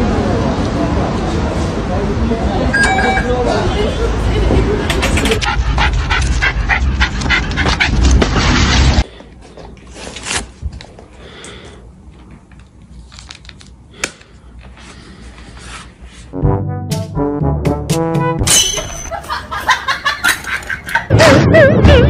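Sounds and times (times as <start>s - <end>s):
dog panting: 5.0s - 8.6s.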